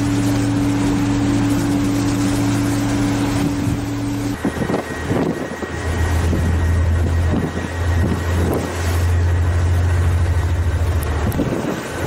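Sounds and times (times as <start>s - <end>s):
ship engines droning: 0.0s - 12.0s
wind noise on microphone: 3.1s - 9.2s, 11.0s - 12.0s.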